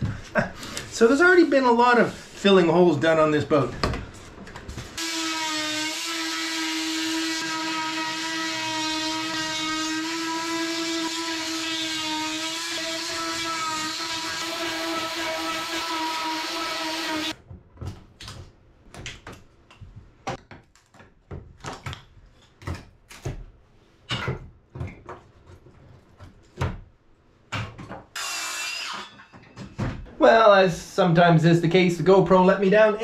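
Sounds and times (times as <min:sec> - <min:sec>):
multi-tool cutting wood: 0:05.0 - 0:17.4, 0:28.2 - 0:29.4.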